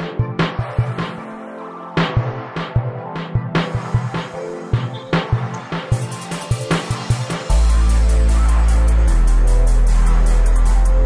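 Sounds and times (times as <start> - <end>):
background music with drum beat: 0.0 - 1.3, 2.0 - 11.0
pulsing bass line: 6.0 - 11.0.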